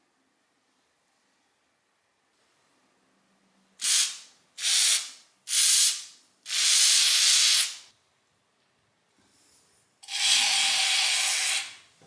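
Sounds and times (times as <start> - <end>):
aerosol spray can hissing: 3.8 - 7.9.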